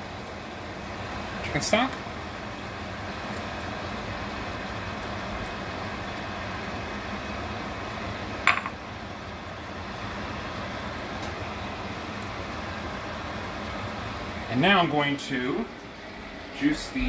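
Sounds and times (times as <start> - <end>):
steady sizzling hiss: 0.0 - 17.0
glass bowl clink: 8.5 - 8.8.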